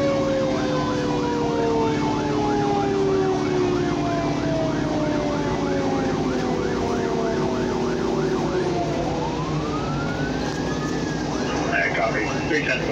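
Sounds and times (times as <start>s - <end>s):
fire engine siren yelping: 0.0s - 12.9s
low siren tone sliding down: 0.0s - 12.9s
truck engine rumble: 0.0s - 12.9s.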